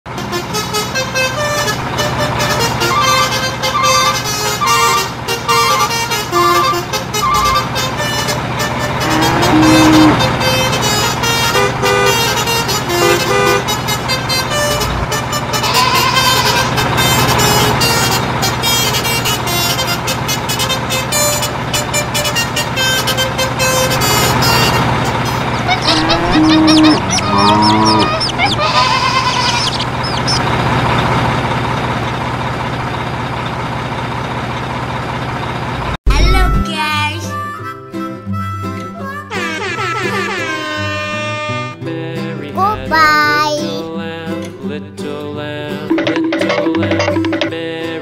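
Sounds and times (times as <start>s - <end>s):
truck engine running: 0.1s - 48.0s
beeping tune: 2.8s - 7.8s.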